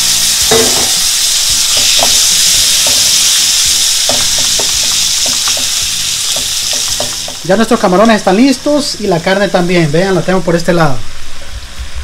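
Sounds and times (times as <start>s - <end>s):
shrimp sizzling in oil: 0.0s - 12.0s
spatula scraping and tapping pan: 0.5s - 1.0s, 1.7s - 3.3s, 4.0s - 7.5s.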